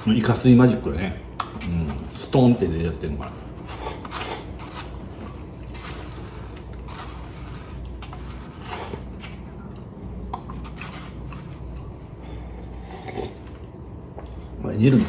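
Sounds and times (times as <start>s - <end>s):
man slurping noodles: 12.6s - 13.5s.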